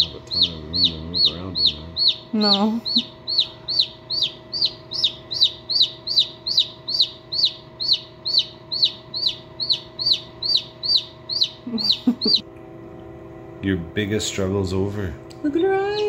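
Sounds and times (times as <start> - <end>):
chick peeping: 0.0 - 12.4.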